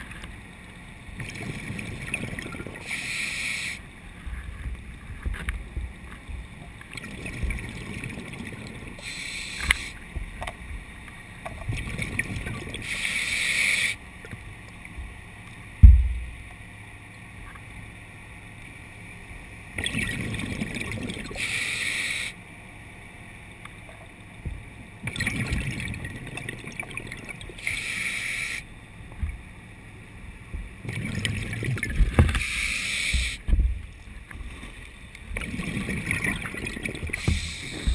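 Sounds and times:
diver breathing underwater: 2.7 - 3.9, 9.0 - 10.0, 12.8 - 14.0, 21.3 - 22.4, 27.6 - 28.7, 32.3 - 33.5, 37.0 - 37.9
heavy low thump: 15.8 - 16.4.

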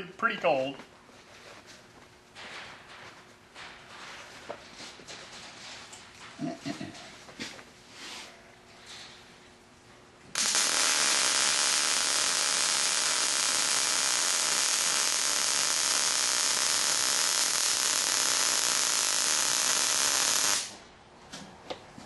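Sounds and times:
welding arc hissing: 10.4 - 20.8.

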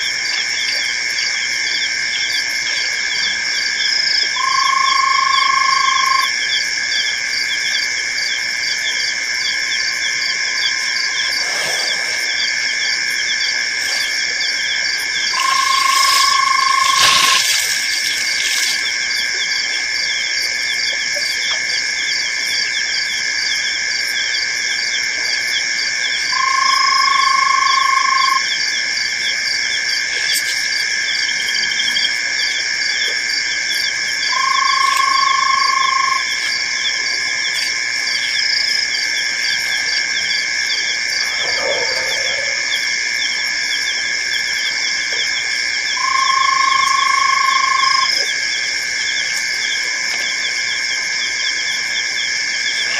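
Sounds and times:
high trilling of frogs and insects: 0.0 - 52.9
lower even animal call: 15.3 - 19.0, 40.7 - 43.5.

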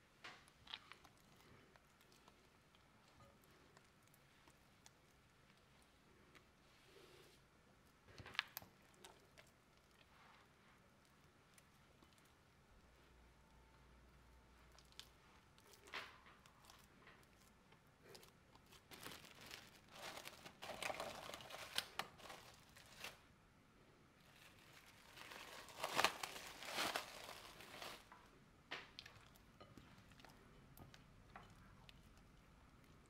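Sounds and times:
crinkling and rustling: 14.6 - 23.3, 24.2 - 33.0.

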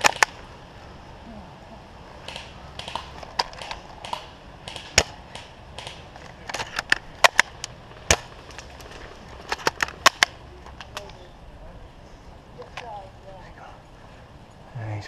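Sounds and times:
twigs and dry leaves crackling: 2.2 - 11.5.

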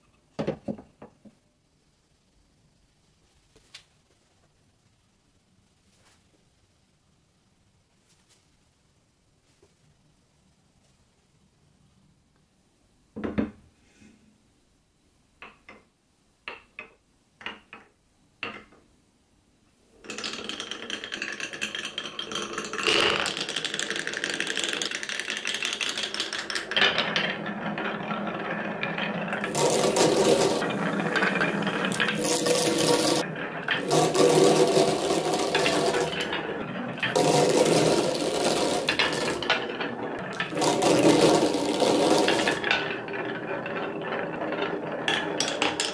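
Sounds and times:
glass marbles rolling on wood: 20.0 - 45.9
marble clicks: 20.1 - 45.9.

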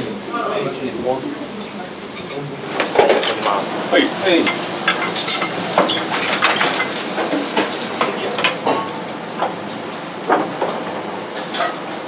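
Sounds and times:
metal utensils clinking on dishes: 4.4 - 9.0, 11.4 - 11.8.

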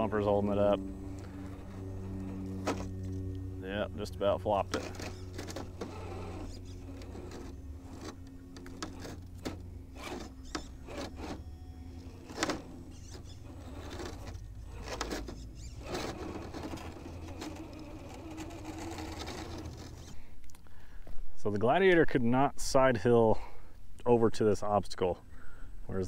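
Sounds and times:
small electric motor whirring: 0.0 - 20.3
tyres scraping on rock: 4.6 - 20.2.

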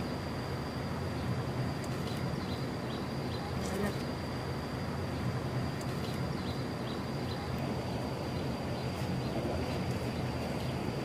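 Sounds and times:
high-pitched whine: 0.0 - 11.0
faint chirps: 1.1 - 4.2, 5.0 - 10.9.

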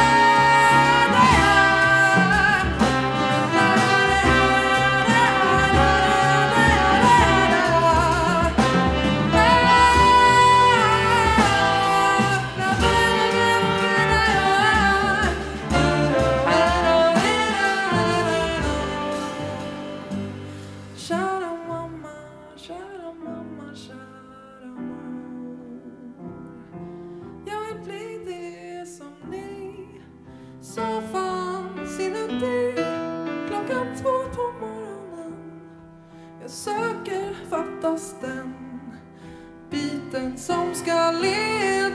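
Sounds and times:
brass: 0.0 - 22.0
jazz band playing: 0.0 - 22.2, 39.6 - 41.9.

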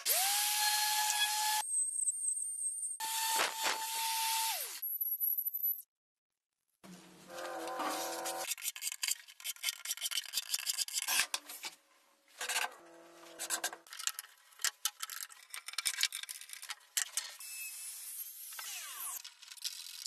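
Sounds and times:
cordless drill motor whining: 0.1 - 1.6, 18.6 - 19.2
scraping on wood: 7.3 - 8.5.

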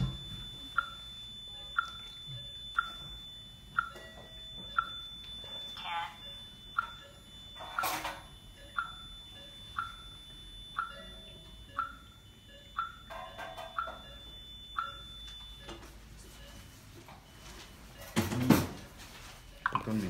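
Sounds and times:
thin steady high tone: 0.0 - 15.8
laser console beeping: 0.0 - 16.7.

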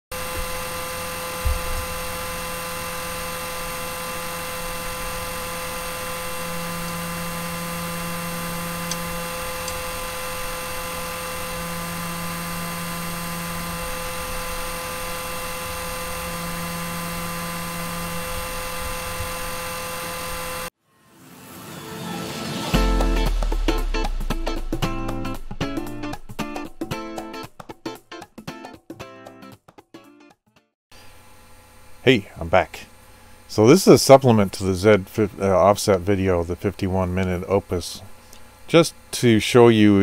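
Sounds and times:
cooling fans whirring: 0.1 - 20.7, 31.0 - 40.0
deeper hum: 0.1 - 20.7, 22.6 - 27.5.

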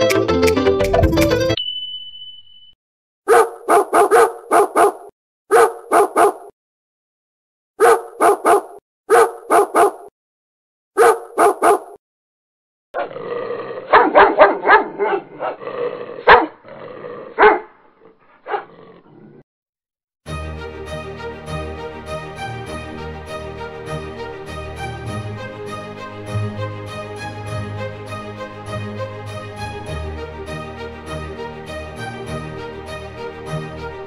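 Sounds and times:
dog barking: 3.3 - 6.5, 7.8 - 10.1, 11.0 - 12.0, 13.9 - 15.6, 16.2 - 16.6, 17.3 - 17.8, 18.4 - 18.8.

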